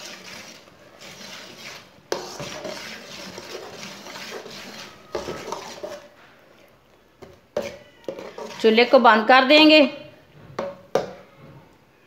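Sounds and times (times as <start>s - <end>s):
metal spatula scraping pan: 0.0s - 6.4s, 7.6s - 9.0s.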